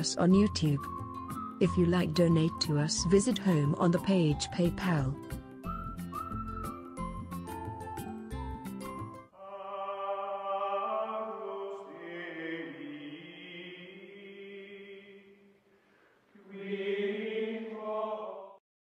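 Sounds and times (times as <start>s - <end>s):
chant-like vocal chords: 9.4s - 15.5s, 16.4s - 18.6s.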